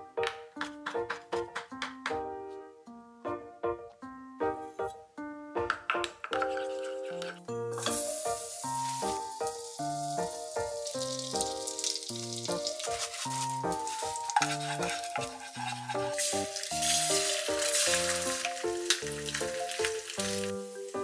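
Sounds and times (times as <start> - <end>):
oil sizzling in frying pan: 7.7 - 21.0.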